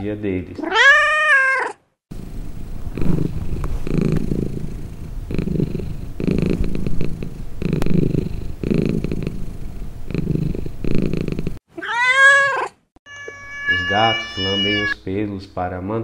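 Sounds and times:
cat purring: 2.1 - 11.6.

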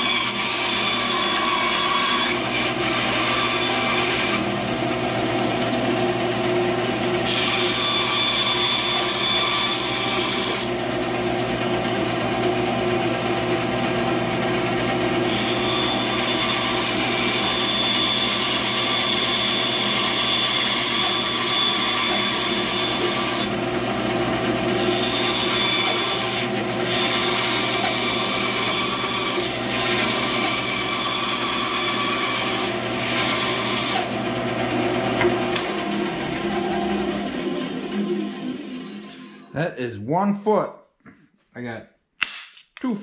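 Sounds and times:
saw blade cutting wood: 0.0 - 5.8, 7.1 - 10.9, 15.2 - 34.2
band saw running: 0.0 - 39.5.

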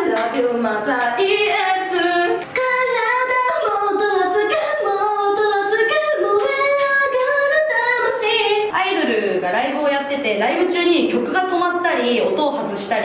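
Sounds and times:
woman singing unaccompanied: 0.0 - 9.2.

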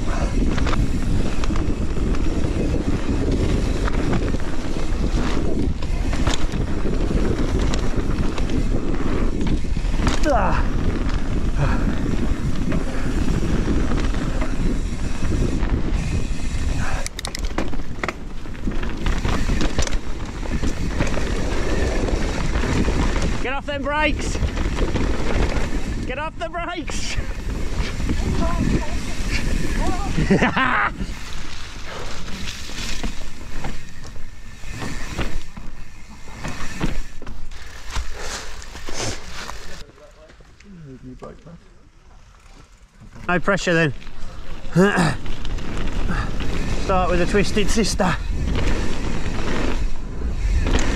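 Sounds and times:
wind on microphone: 0.0 - 23.5, 27.1 - 35.7
bike tyres rattling over rough ground: 0.0 - 50.9.

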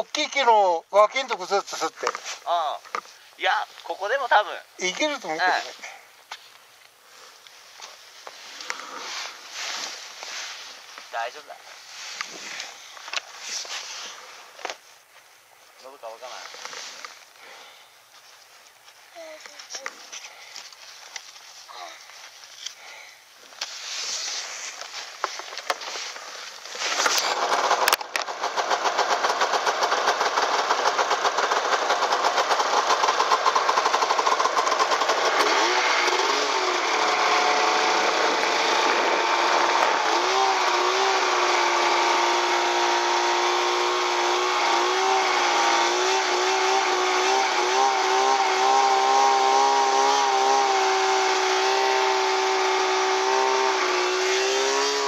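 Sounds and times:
snowmobile engine running: 26.8 - 55.0.

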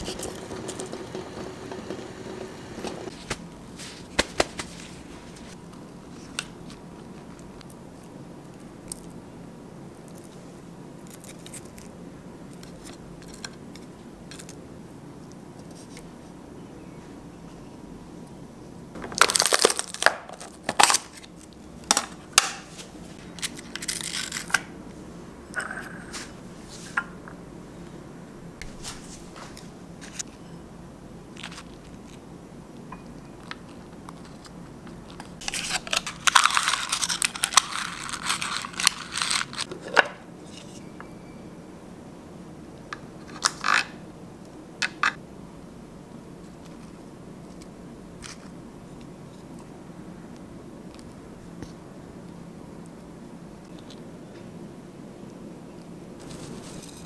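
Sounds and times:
food crinkling and crunching: 19.0 - 24.7, 31.3 - 32.2, 33.4 - 39.7, 56.2 - 57.0.

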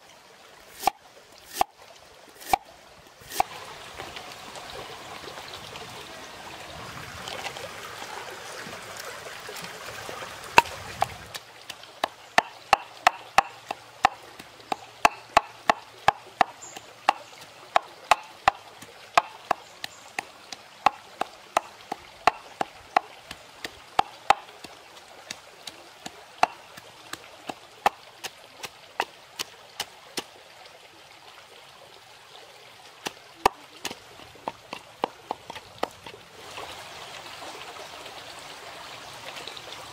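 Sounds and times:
stream water rushing: 0.0 - 39.9
pestle pounding in clay mortar: 2.4 - 2.6, 12.0 - 18.6, 19.2 - 24.5, 26.4 - 26.9, 33.0 - 36.1.

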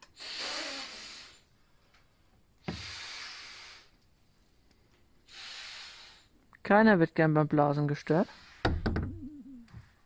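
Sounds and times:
person blowing into inflatable pad: 0.2 - 1.3.

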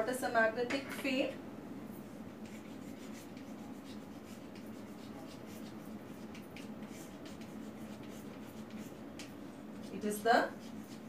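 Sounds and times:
chalk scratching on blackboard: 2.4 - 11.0.

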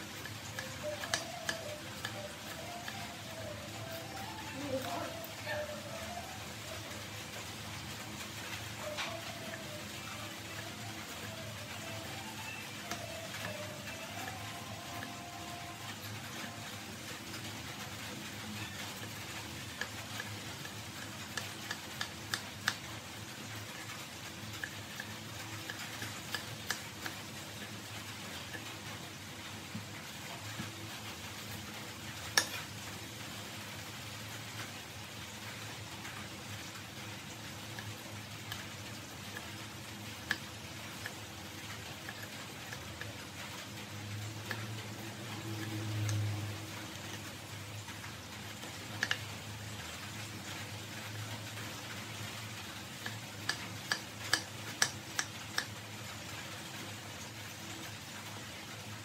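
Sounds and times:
steady hiss: 0.0 - 59.0
knife clicks and taps on board: 0.2 - 3.0.

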